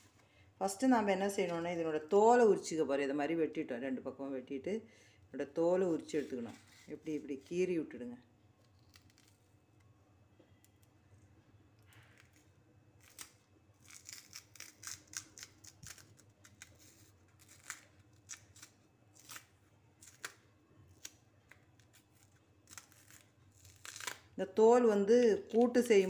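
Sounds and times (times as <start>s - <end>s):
plantain peel scraping and snapping: 8.6s - 9.4s, 11.9s - 24.4s.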